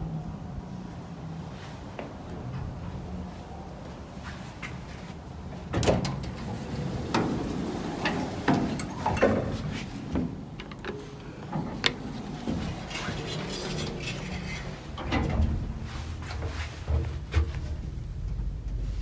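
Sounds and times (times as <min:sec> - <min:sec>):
steady low hum: 0:00.0 - 0:19.0
elevator doors clattering: 0:02.1 - 0:03.7, 0:05.2 - 0:19.0.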